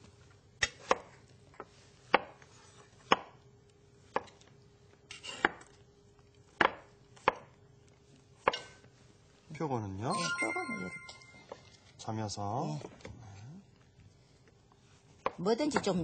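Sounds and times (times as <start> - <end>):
knife chopping on cutting board: 3.0 - 3.4, 6.6 - 7.5, 8.4 - 8.8.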